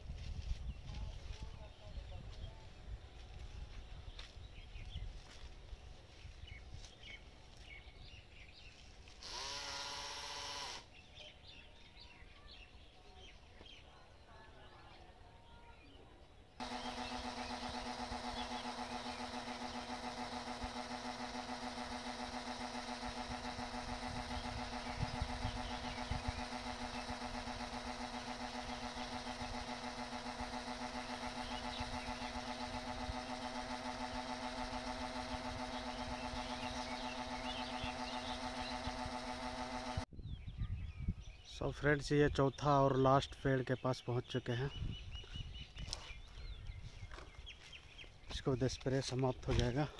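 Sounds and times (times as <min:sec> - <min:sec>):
electric spray pump humming: 0:08.8 - 0:11.6, 0:16.6 - 0:40.1.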